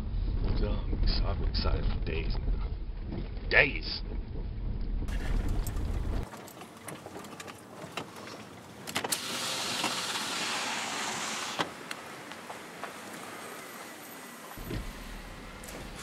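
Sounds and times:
car road rumble: 0.0 - 6.3, 9.9 - 16.0
steady hiss: 9.2 - 12.1.

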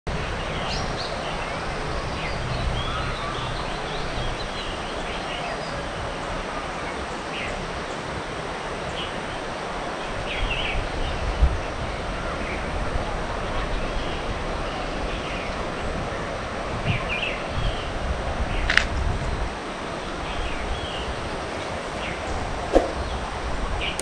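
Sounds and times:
steady rushing outdoor noise: 0.1 - 24.0
low bump: 20.8 - 24.0.

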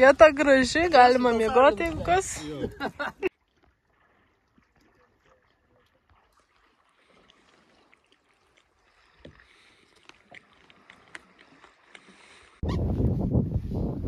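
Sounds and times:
wind buffeting microphone: 0.0 - 3.0, 12.6 - 14.0
water lapping and dripping: 0.0 - 12.6.

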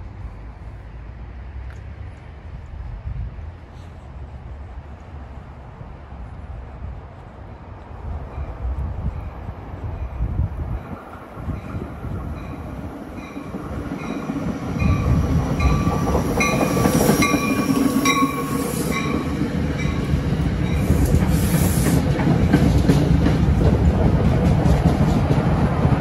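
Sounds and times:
train wheels rumbling: 0.0 - 26.0
train bell ringing: 11.6 - 21.0.

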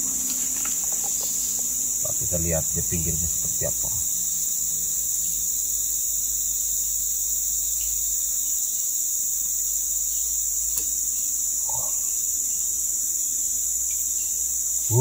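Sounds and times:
insect chorus drone: 0.0 - 15.0
faint click: 10.7 - 10.9.

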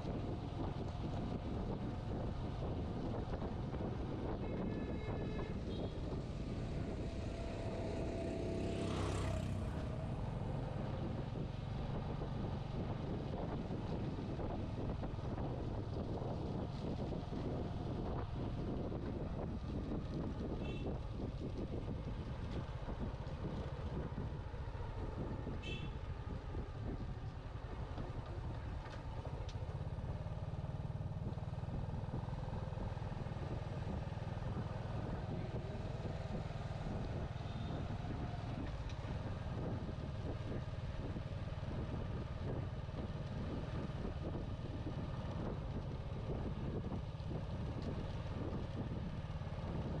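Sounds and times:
vehicle rumbling on road: 0.0 - 50.0.

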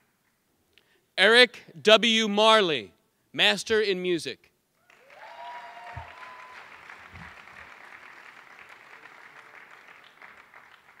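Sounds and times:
audience applauding: 4.8 - 11.0
person cheering: 5.0 - 6.7.

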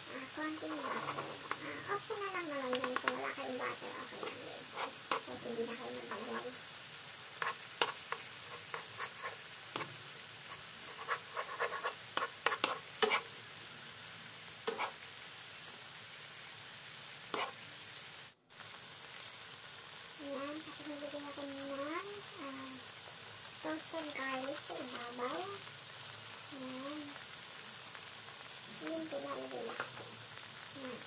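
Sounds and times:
fish sizzling in a pan: 0.0 - 31.0
spoon scraping a pan: 0.6 - 6.6, 7.3 - 13.4, 14.6 - 15.0, 17.2 - 17.7.

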